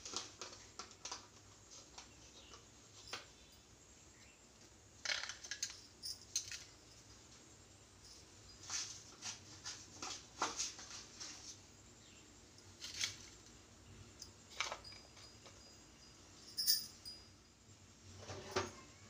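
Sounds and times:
quiet room hiss: 0:00.0 - 0:19.0.

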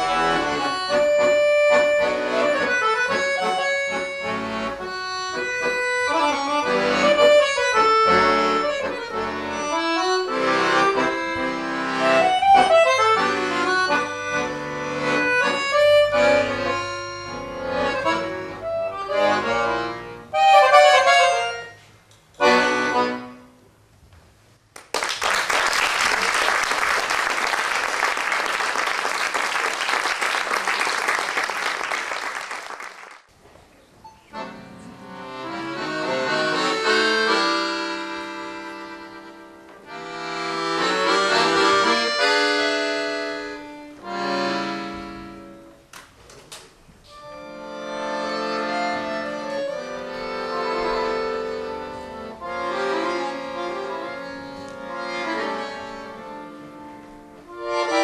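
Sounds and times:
piano accordion playing: 0:00.0 - 0:23.9, 0:34.0 - 0:46.0, 0:47.0 - 0:58.0
audience applauding: 0:24.7 - 0:33.3.

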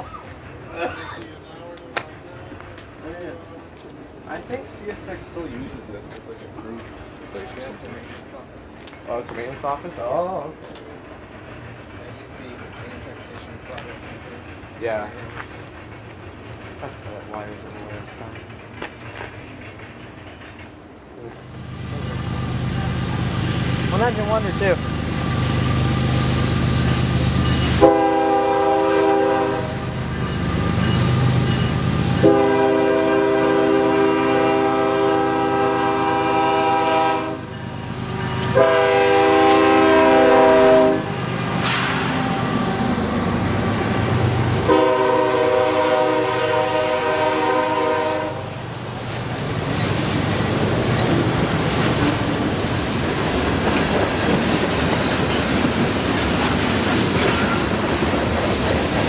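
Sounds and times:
train wheels clicking over rail joints: 0:00.0 - 0:29.4, 0:30.0 - 0:45.3, 0:48.5 - 0:59.0
locomotive engine: 0:00.0 - 0:59.0
locomotive air horn: 0:27.7 - 0:30.0, 0:32.2 - 0:37.5, 0:38.2 - 0:43.0, 0:44.7 - 0:48.5.

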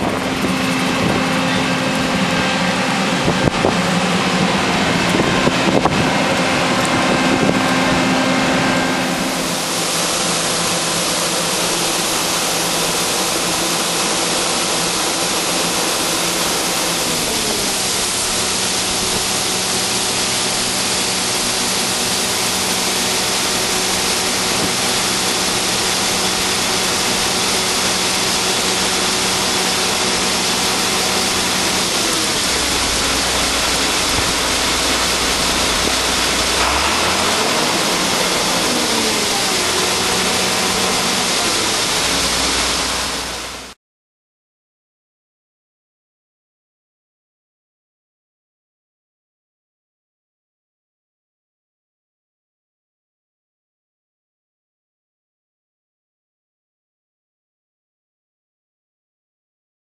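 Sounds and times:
engine humming: 0:00.0 - 0:43.7
grain pouring hiss: 0:07.7 - 0:43.8.

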